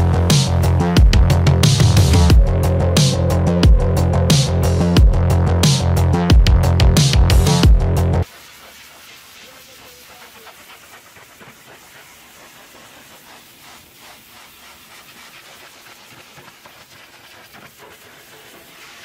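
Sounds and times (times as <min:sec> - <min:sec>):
pressure washer jet hissing: 0:08.2 - 0:19.0.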